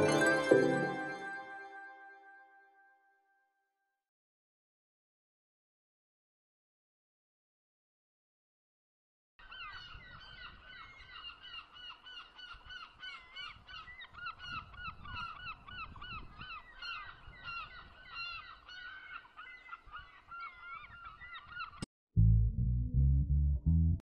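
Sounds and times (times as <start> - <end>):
flock of birds calling: 9.4 - 21.8
low rumble: 22.2 - 24.0.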